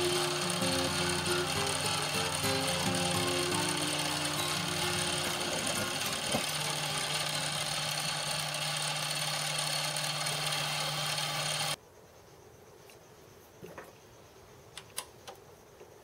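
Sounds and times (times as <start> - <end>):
lathe humming: 0.0 - 11.8.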